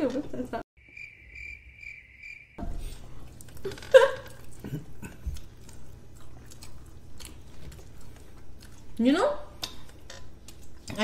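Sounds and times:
high pulsing chirp: 0.8 - 2.6
people chewing food: 2.6 - 11.0.

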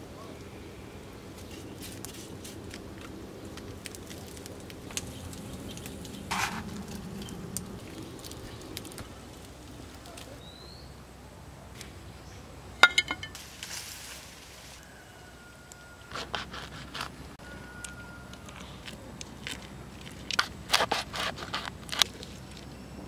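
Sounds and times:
wood fire crackling: 1.4 - 10.6.

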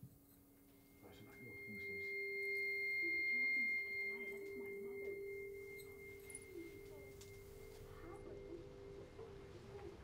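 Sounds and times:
low hum: 0.0 - 10.0
high ringing tone: 0.2 - 9.6.

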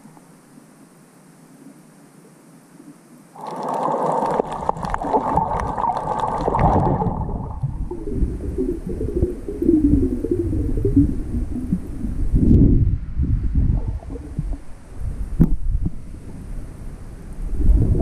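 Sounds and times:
crackling: 3.3 - 12.7
water sloshing and gurgling: 3.4 - 16.0.

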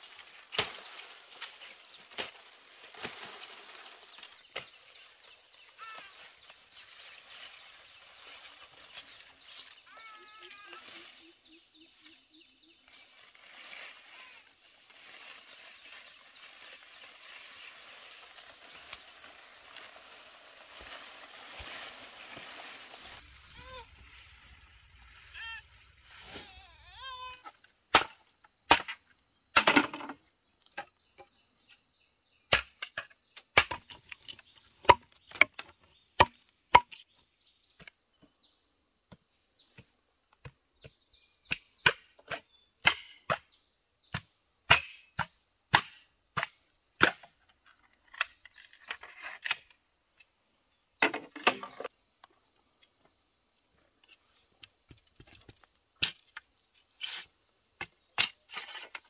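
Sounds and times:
bamboo being chopped: 0.1 - 4.8, 27.9 - 29.0, 32.5 - 37.0, 39.1 - 43.5, 44.1 - 47.4.

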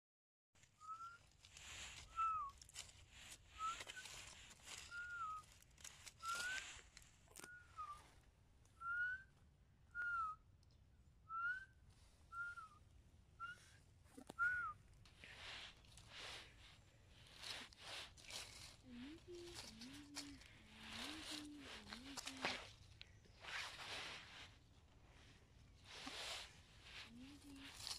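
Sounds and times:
soft rustles: 0.6 - 9.5, 11.9 - 27.9
short whistled notes: 0.7 - 1.2, 2.0 - 2.6, 4.8 - 5.5, 6.2 - 6.8, 7.4 - 8.1, 11.3 - 12.8, 14.4 - 14.8.

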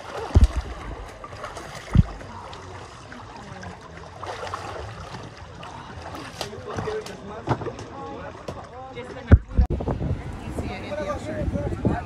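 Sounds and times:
water sloshing and splashing: 0.0 - 9.7
low thumps: 0.3 - 1.2, 1.8 - 2.3.

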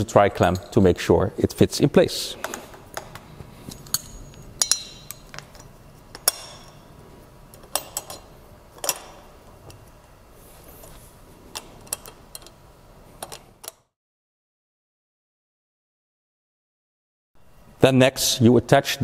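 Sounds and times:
metallic clicks and clinks: 7.5 - 9.8.

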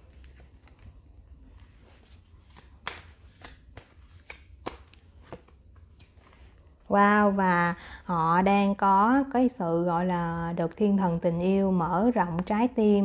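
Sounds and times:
cards tapping and snapping: 2.4 - 6.3.

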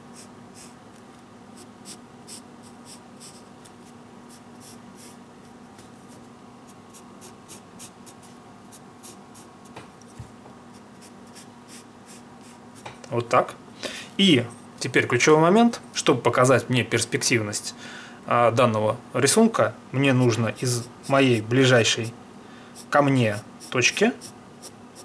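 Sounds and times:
pencil scratching on paper: 1.6 - 3.5, 4.3 - 6.3, 22.8 - 25.0.

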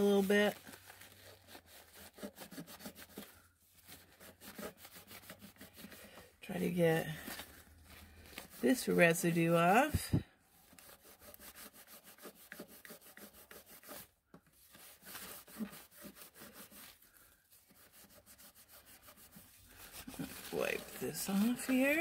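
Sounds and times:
paper towel rubbing plastic: 0.0 - 22.0.

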